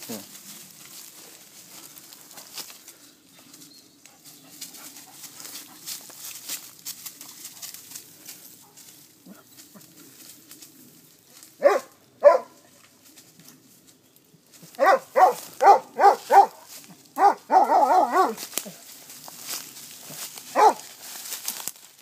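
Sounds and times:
rustling of grass and dry leaves: 0.0s - 22.0s
dog barking: 11.6s - 12.7s, 14.8s - 18.4s, 20.5s - 20.9s.

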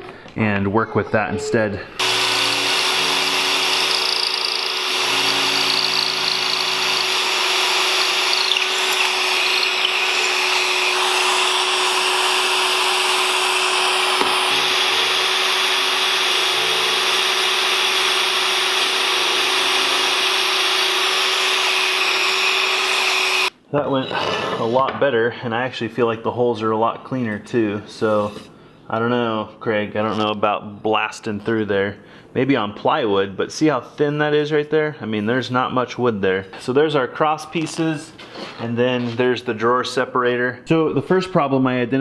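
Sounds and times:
shop vacuum droning: 1.8s - 25.0s
cordless drill boring into wood: 2.0s - 23.5s.

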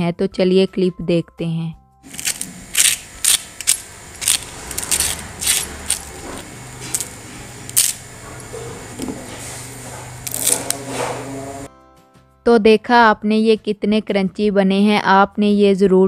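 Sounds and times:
crispy potato sticks snapping: 2.1s - 6.1s, 6.8s - 8.0s, 10.3s - 10.8s.

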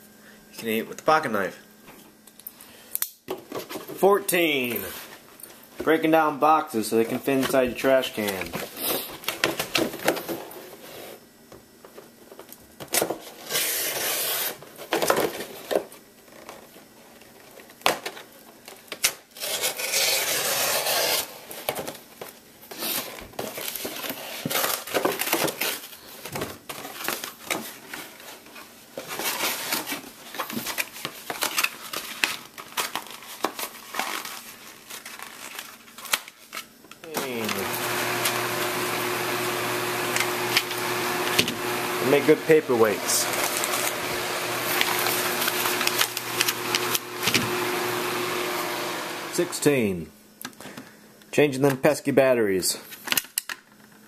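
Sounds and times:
knife cutting cardboard: 13.4s - 14.6s, 19.4s - 21.4s
cardboard tearing and crinkling: 19.1s - 22.0s, 22.7s - 38.0s, 42.1s - 47.5s.

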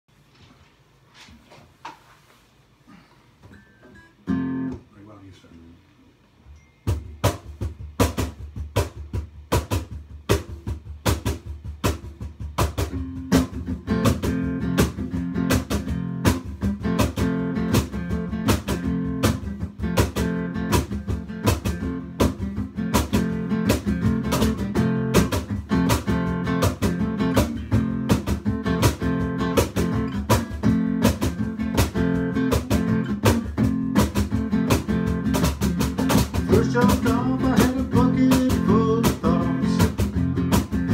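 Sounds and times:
acoustic guitar strumming: 3.5s - 4.9s, 6.8s - 40.9s.

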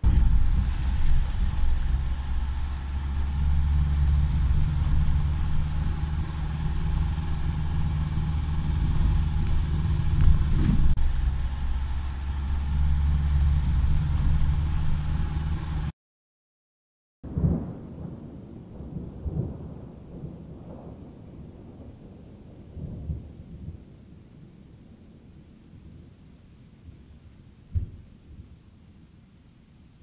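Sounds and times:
car engine and road noise: 0.0s - 15.9s
brief thump: 27.7s - 28.0s.

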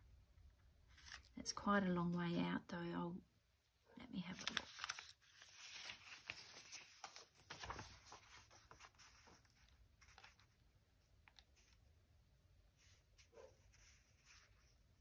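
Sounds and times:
paper rustling and crinkling: 4.3s - 11.8s.

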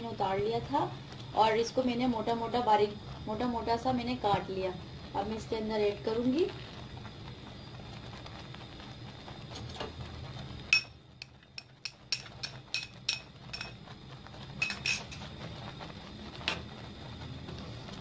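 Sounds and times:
low steady hum: 0.0s - 18.0s
kitchenware clinking: 11.9s - 13.8s, 14.6s - 15.2s.

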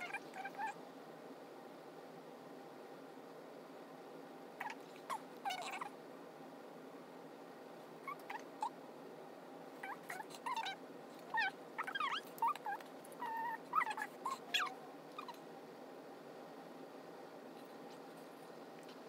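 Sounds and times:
pet animal whimpering: 0.0s - 0.8s, 4.6s - 6.0s, 8.0s - 8.8s, 9.8s - 15.4s.

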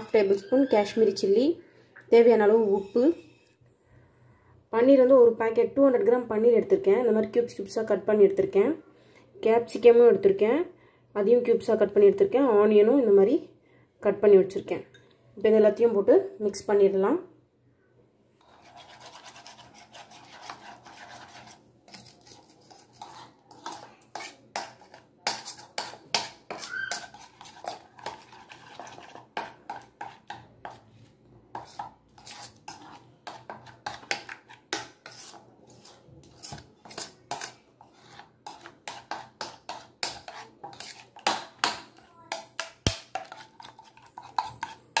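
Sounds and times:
spoon clinking and scraping bowl: 18.4s - 30.8s, 31.5s - 45.0s.

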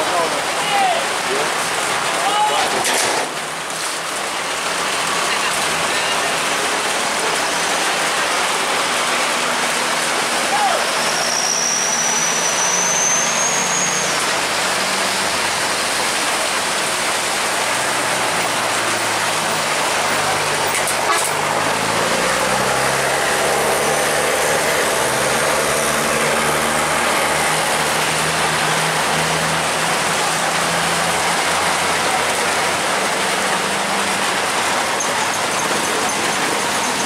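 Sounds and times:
heavy rain on wet road: 0.0s - 37.0s
truck engines running: 0.0s - 37.0s.

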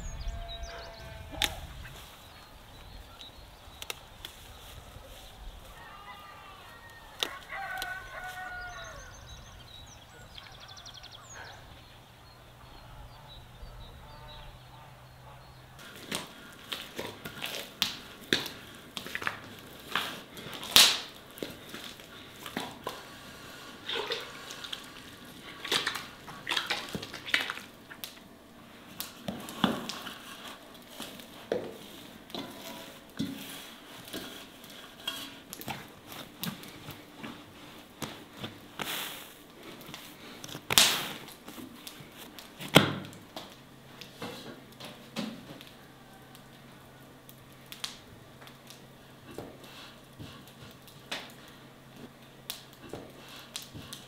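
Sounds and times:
rooster crowing: 5.6s - 9.4s, 45.6s - 47.1s.

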